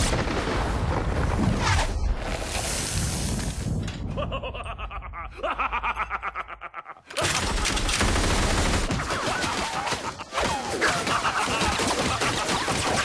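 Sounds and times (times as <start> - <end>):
machine gun firing: 7.2 - 13.0.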